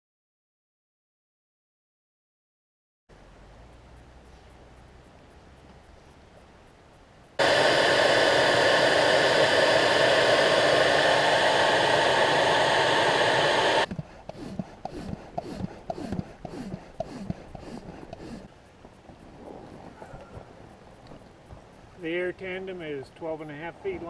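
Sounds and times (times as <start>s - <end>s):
electric blower running: 7.4s - 18.5s
hand pump strokes: 13.8s - 18.5s.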